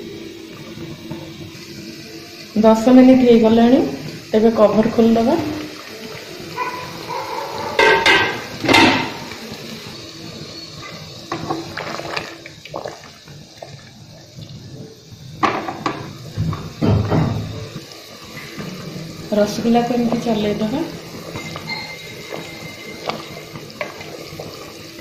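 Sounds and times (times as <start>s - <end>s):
syrup boiling and bubbling: 0.0s - 25.0s
metal pot clattering: 7.6s - 9.3s, 21.2s - 24.4s.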